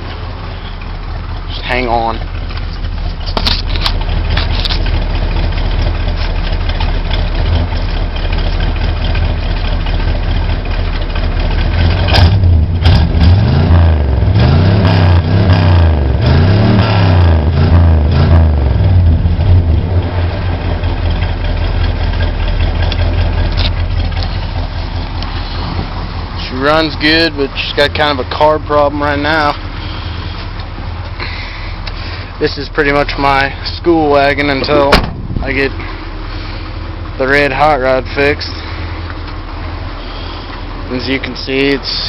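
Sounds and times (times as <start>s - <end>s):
engine idling and revving: 0.0s - 42.0s.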